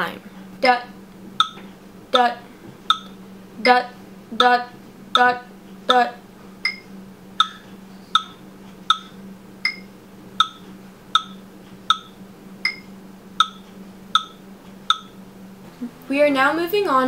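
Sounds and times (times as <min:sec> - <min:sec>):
electronic metronome clicking: 0:01.4 - 0:02.3, 0:02.9 - 0:03.8, 0:04.4 - 0:06.0, 0:06.6 - 0:15.2.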